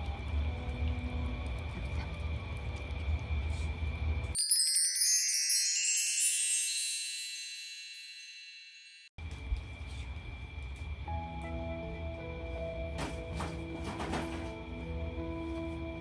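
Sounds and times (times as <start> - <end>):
sparkling chime effect: 4.3 - 9.2.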